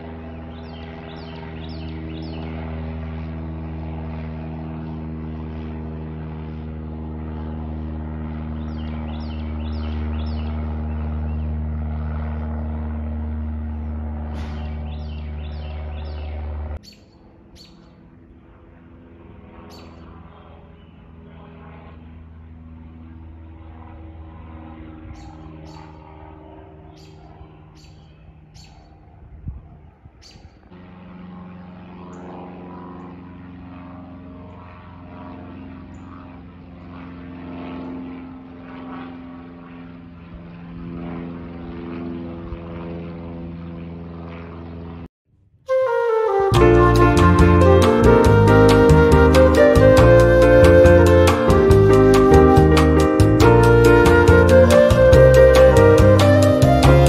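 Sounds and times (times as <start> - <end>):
propeller aircraft droning overhead: 0.0 - 45.1, 45.7 - 57.0
bird chirps: 0.3 - 2.5, 8.6 - 11.4, 14.4 - 18.0, 19.7 - 20.0, 25.2 - 26.0, 26.9 - 28.9.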